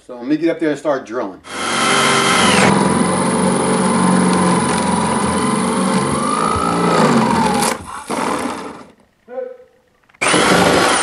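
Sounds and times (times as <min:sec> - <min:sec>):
electric drill boring into wood: 0:01.5 - 0:09.0, 0:10.2 - 0:11.0.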